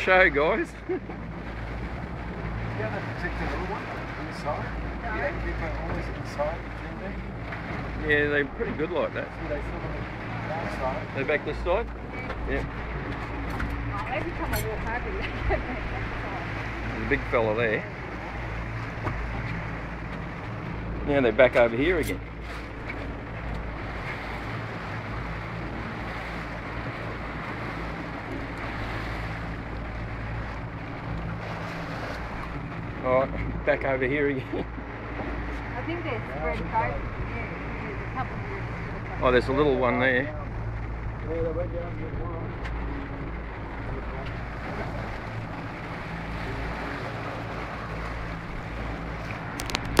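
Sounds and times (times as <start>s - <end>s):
motorboat engine running: 0.0s - 50.0s
water washing along hull: 0.0s - 50.0s
wind noise on microphone: 49.1s - 50.0s.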